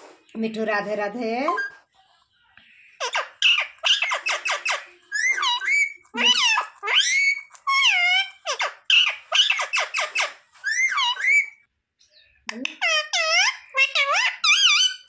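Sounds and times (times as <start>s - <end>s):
parakeet chattering: 3.0s - 11.6s, 12.6s - 15.0s.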